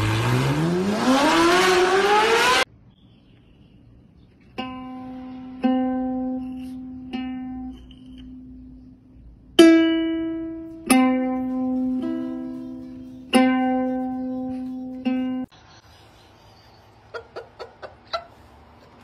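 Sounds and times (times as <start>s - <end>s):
ukulele strings plucked: 4.6s - 8.9s, 9.6s - 15.5s.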